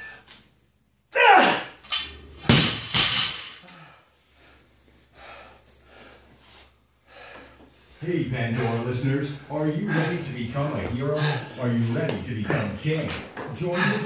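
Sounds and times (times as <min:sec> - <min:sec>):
barbell crashing onto rubber mats: 0:02.4 - 0:03.6
heavy panting breaths: 0:03.6 - 0:14.0.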